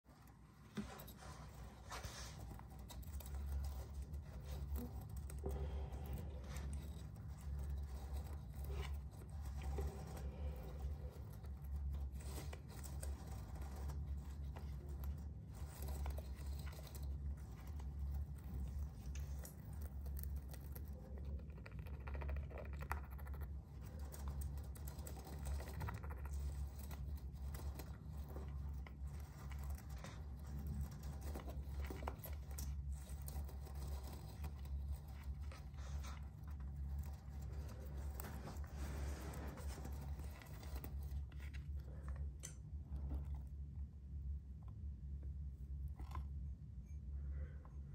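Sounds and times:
hamster scratching at wall: 0.0 - 43.4
steady low hum: 0.0 - 47.9.

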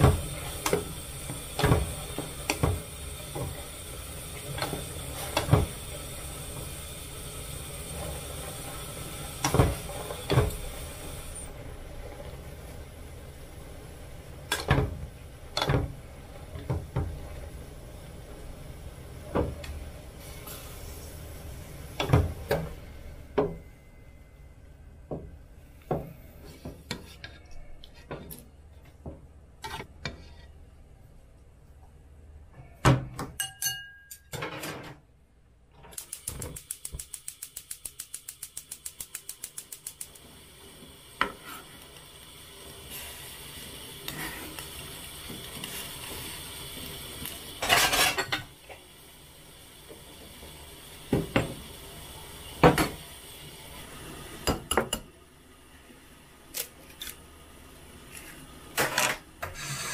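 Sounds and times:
steady hiss: 0.0 - 27.0, 35.9 - 59.9
pots and utensils clinking: 33.4 - 35.0, 47.6 - 48.6.

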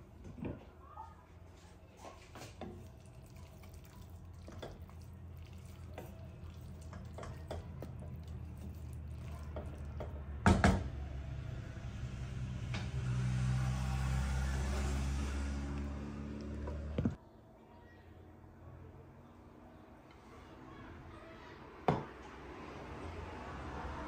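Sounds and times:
wooden spoon stirring vegetables: 1.7 - 10.4
stew simmering in a pot: 1.8 - 11.0.

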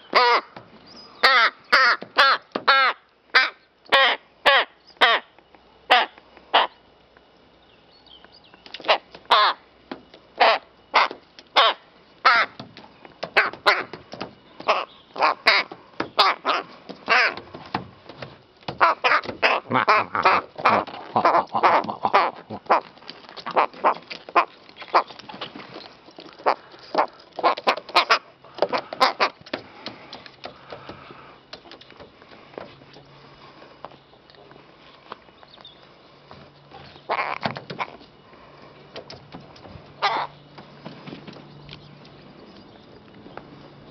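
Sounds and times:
rook cawing harshly: 0.0 - 0.6, 1.2 - 5.3, 8.8 - 9.7, 10.4 - 12.6, 13.2 - 14.0, 14.6 - 17.5, 18.7 - 25.1, 26.4 - 31.4, 37.0 - 38.4, 40.0 - 40.4.

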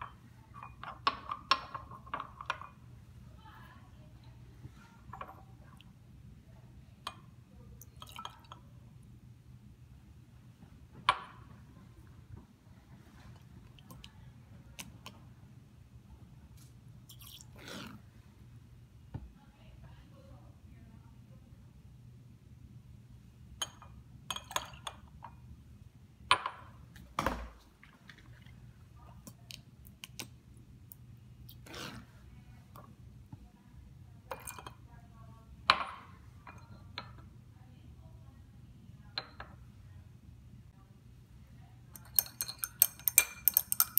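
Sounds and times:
glass beakers clinking: 0.0 - 2.8, 7.1 - 8.7, 23.6 - 25.1, 34.3 - 34.8, 41.9 - 43.9
low steady hum: 0.0 - 43.9
glass beaker clinking: 7.9 - 8.6, 23.6 - 25.0, 41.9 - 43.9.

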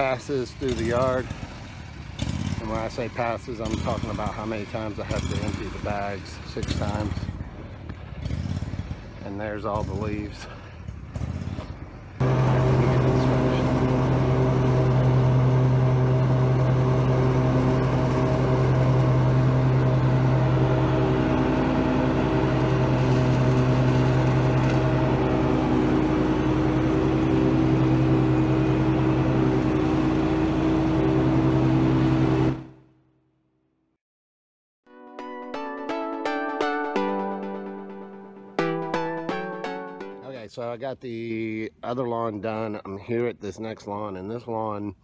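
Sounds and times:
lawn mower engine hum: 0.0 - 32.8.

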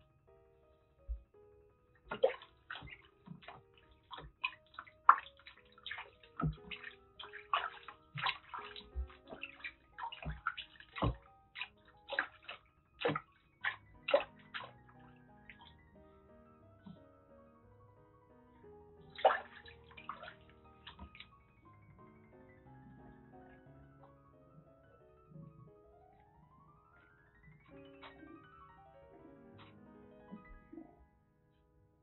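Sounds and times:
soft background music: 0.0 - 32.0
water splashing in plastic basin: 2.1 - 15.8, 19.1 - 21.4.

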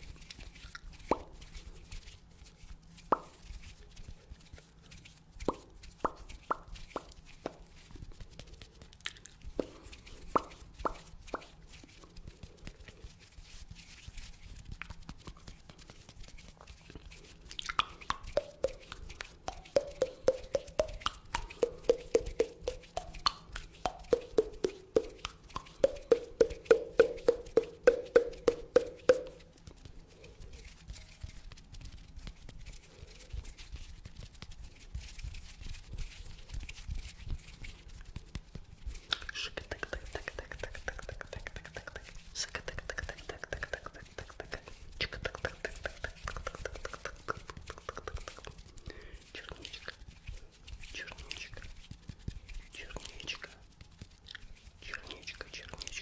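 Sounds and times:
hollow mouth pops: 0.6 - 1.4, 3.0 - 3.5, 5.4 - 7.6, 8.9 - 11.5, 17.5 - 29.4, 39.0 - 48.6.

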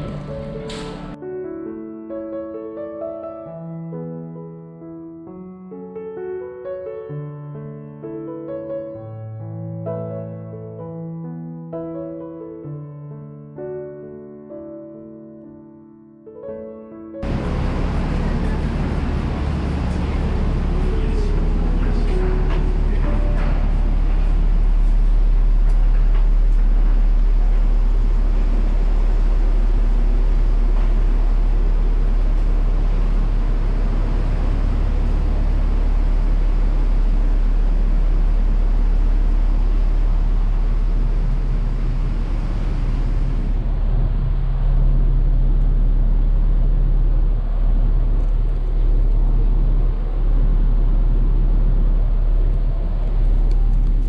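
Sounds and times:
ferry engines droning: 0.0 - 1.2, 17.2 - 54.0
rush of air and water: 17.2 - 54.0.

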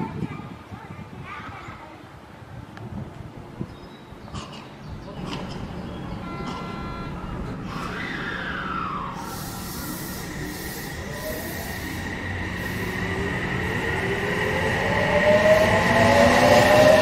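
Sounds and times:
electric train motor whine: 5.6 - 16.7.

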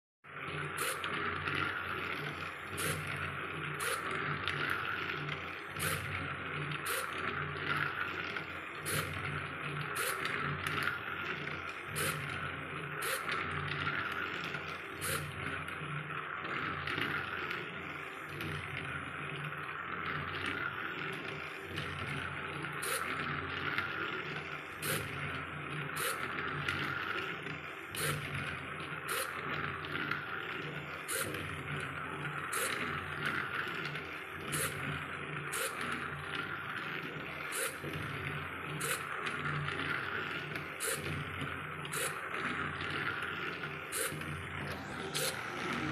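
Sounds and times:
toy train motor whirring: 0.3 - 45.9.

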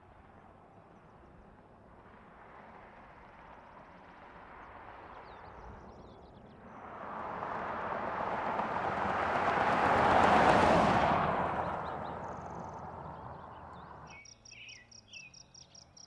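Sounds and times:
car driving past: 6.5 - 14.2.

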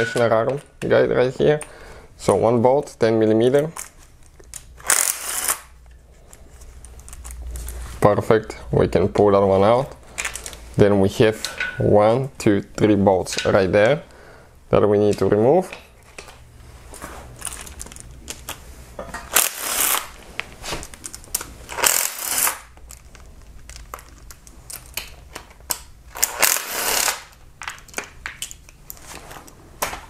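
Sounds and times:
ratchet wrench clicking: 4.8 - 5.7, 21.7 - 22.6, 26.2 - 27.3.

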